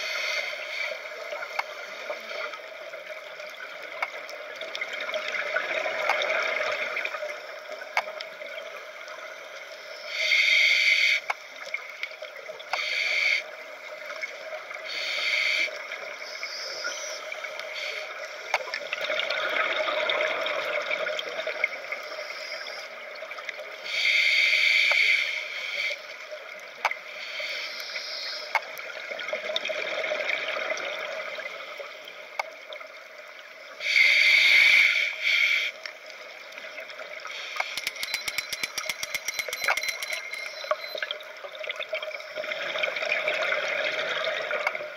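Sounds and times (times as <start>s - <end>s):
steady watery hiss: 0.0s - 7.7s, 8.5s - 11.8s, 12.5s - 18.9s, 21.4s - 29.0s, 33.2s - 38.3s
faint clicks: 1.4s - 2.6s, 3.4s - 5.0s, 26.6s - 29.0s, 37.3s - 41.2s.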